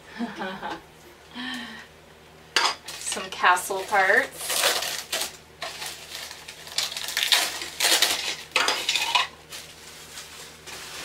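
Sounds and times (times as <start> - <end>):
plastic bag crinkling: 3.7 - 11.0.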